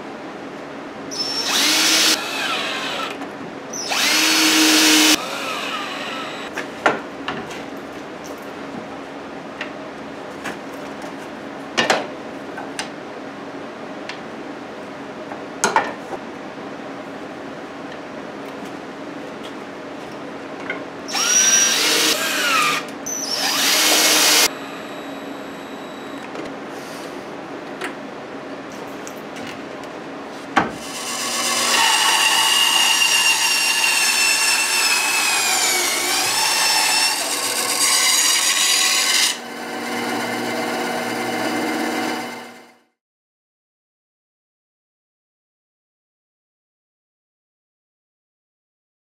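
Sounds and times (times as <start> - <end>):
bandsaw cutting wood: 1.2 - 3.2, 3.8 - 6.5, 21.1 - 25.1, 30.8 - 42.6.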